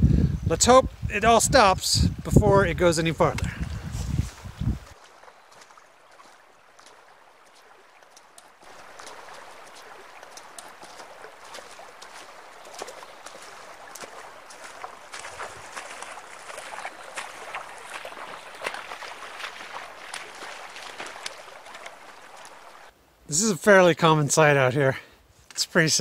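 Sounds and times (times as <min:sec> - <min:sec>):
small water splashes: 0:03.3 - 0:22.9
river water rushing: 0:04.9 - 0:22.9.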